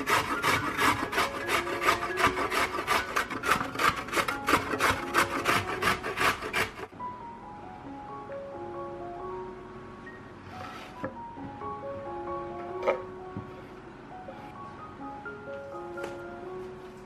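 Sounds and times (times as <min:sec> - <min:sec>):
carrot grating on metal grater: 0:00.0 - 0:06.9.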